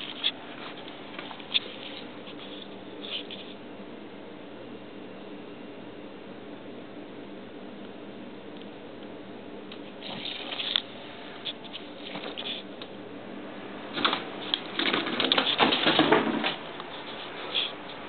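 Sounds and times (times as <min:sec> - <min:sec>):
cat scratching on tile floor: 0:00.0 - 0:03.6, 0:11.5 - 0:12.7, 0:14.0 - 0:18.0
paper rustling: 0:00.0 - 0:03.6, 0:14.0 - 0:18.0.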